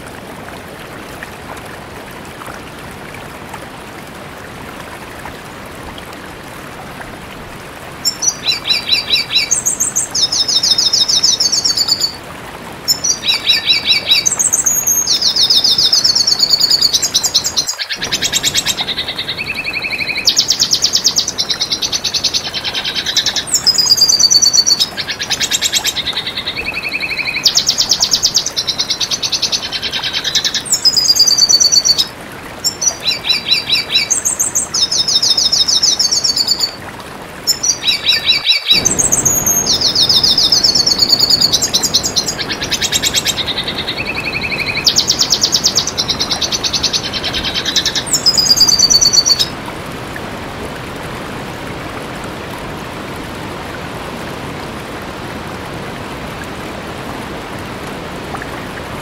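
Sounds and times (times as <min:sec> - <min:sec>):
bird twittering song: 0:08.0 - 0:12.2, 0:12.9 - 0:36.8, 0:37.5 - 0:49.5.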